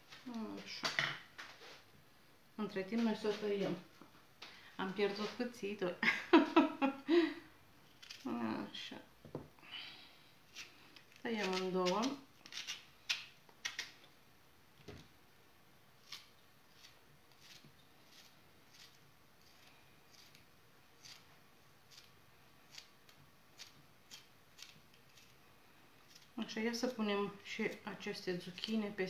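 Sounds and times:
knife cutting zucchini: 10.5 - 14.0, 16.0 - 21.3, 21.9 - 25.4.

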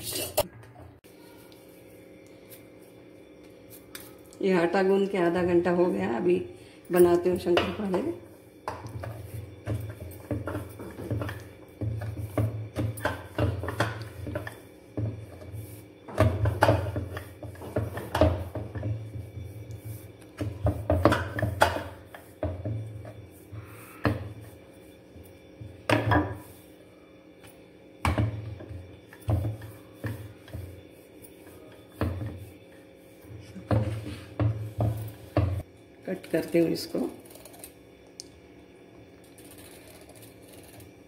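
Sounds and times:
rolling pin rolling dough on board: 7.1 - 26.8, 27.5 - 37.6.

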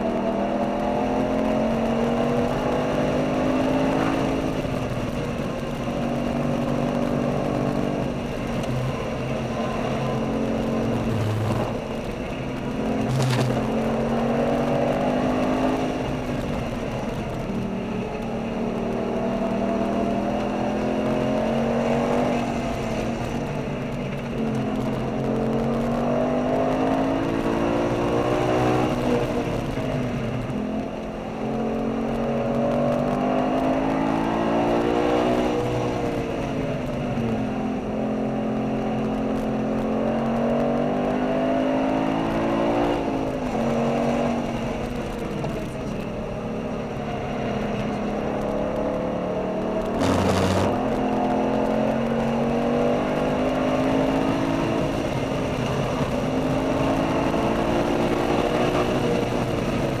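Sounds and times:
sports car engine revving: 0.0 - 23.6, 37.8 - 60.0.

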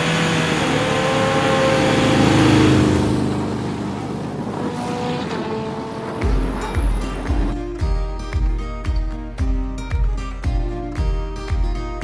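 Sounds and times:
motorcycle engines revving: 0.0 - 7.6.

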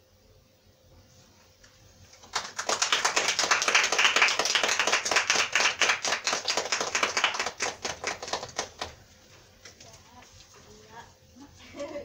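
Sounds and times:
small audience clapping: 2.1 - 9.0.

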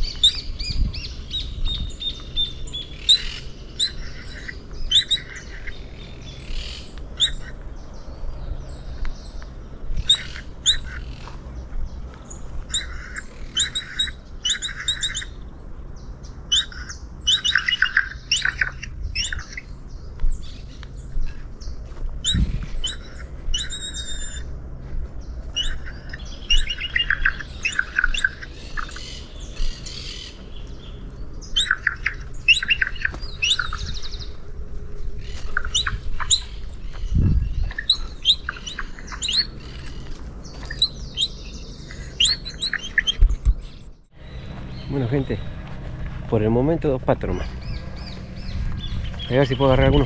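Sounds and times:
birds chirping: 0.0 - 50.0
dull low thumps: 36.9 - 37.8, 43.2 - 50.0.

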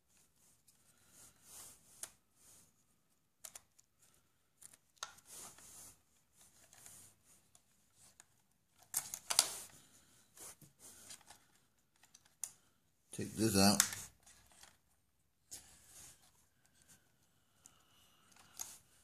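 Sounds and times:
plastic clicks and scrapes: 3.4 - 12.7, 13.6 - 19.0.

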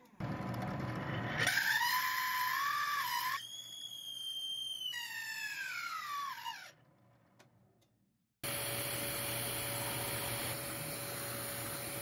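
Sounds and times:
drill bit squealing in wood: 1.4 - 6.8.

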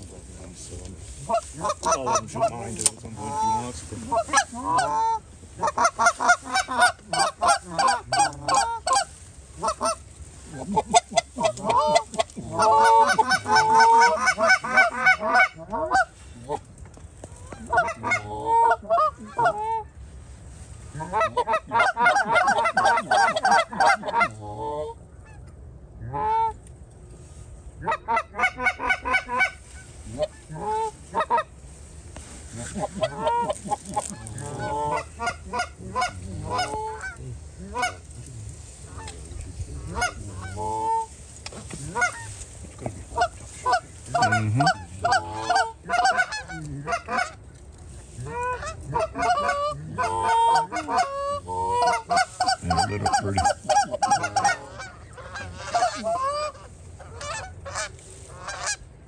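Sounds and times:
goose honking: 0.6 - 26.6, 27.8 - 58.9.

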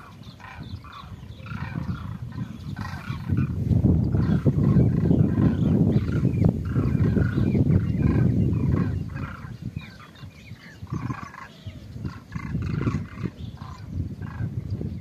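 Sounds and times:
flock of birds calling: 0.0 - 15.0
wind rumble on microphone: 0.0 - 15.0.

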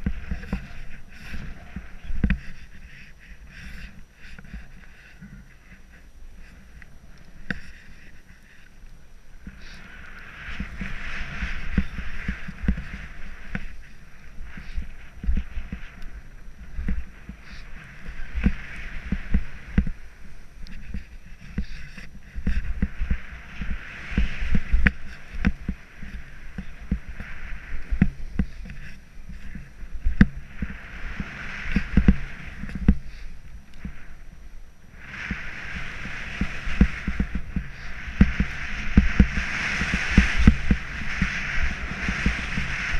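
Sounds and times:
wind rumble on microphone: 0.0 - 42.9
snowboard hissing through snow: 9.5 - 16.0, 21.4 - 34.2, 34.9 - 42.9.

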